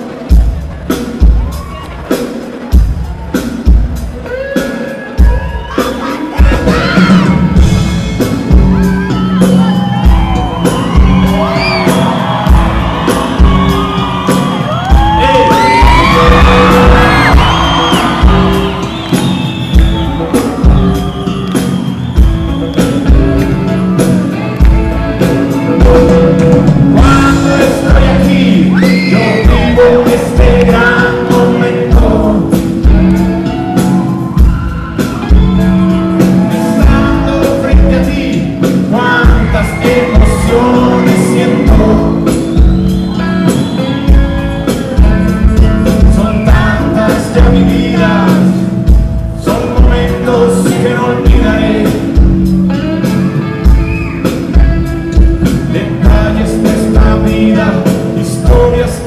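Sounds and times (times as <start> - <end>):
rock band playing live: 0.0 - 59.0
steady drum beat: 0.0 - 59.0
male lead vocal: 4.2 - 7.6, 14.6 - 18.9, 26.8 - 33.2, 36.4 - 42.8, 44.9 - 52.6, 55.4 - 59.0.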